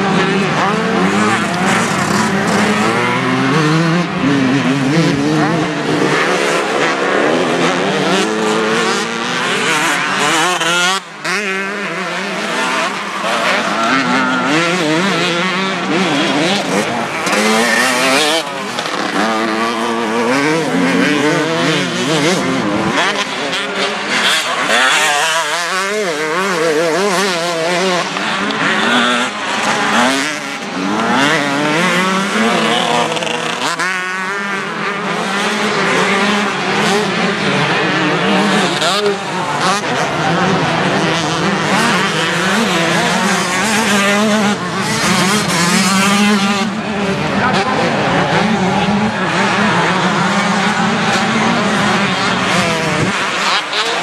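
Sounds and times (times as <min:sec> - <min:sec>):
motocross bike engines revving: 0:00.0 - 0:54.0.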